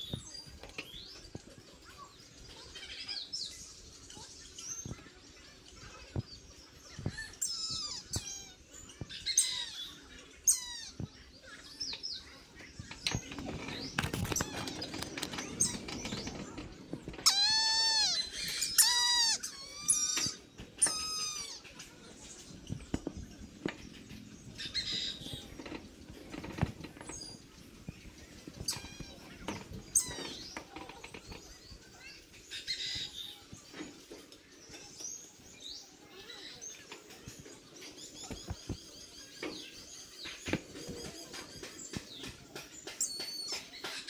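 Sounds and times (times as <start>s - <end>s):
faint chirps: 0.0s - 44.0s
bird of prey mewing calls: 17.2s - 21.2s.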